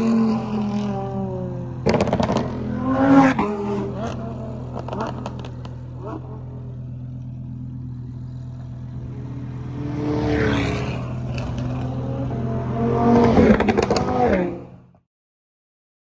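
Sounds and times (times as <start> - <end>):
sports car engine accelerating past: 0.0 - 14.8
crackling exhaust pops: 1.9 - 2.5, 4.7 - 5.9.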